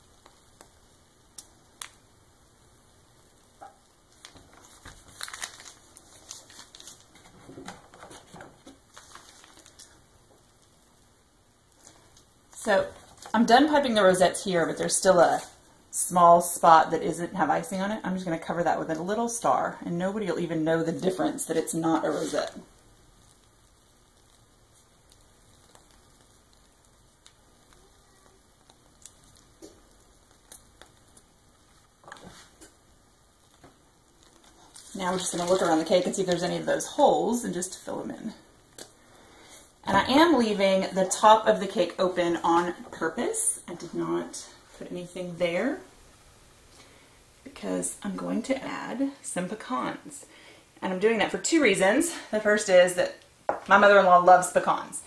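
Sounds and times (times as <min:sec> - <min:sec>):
plastic pastry bag crinkling: 0:03.6 - 0:10.8, 0:11.7 - 0:13.9, 0:20.4 - 0:44.8
plastic piping bag handling: 0:04.1 - 0:10.0, 0:33.4 - 0:36.8.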